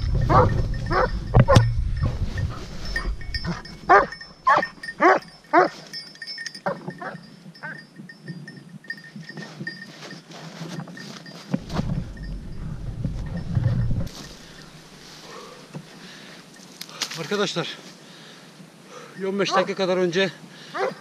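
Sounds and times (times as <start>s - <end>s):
dog barking: 0.3s - 1.6s, 3.5s - 5.8s, 19.4s - 19.8s, 20.8s - 21.0s.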